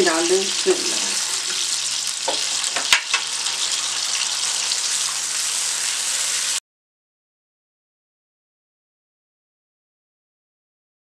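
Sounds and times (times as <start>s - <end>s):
milk boiling and sizzling in wok: 0.0s - 6.6s
sharp knocks against pan: 2.2s - 3.3s.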